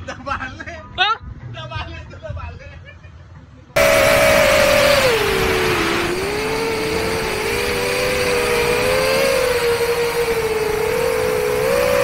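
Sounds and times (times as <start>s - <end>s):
drone propellers whining: 3.8s - 12.0s.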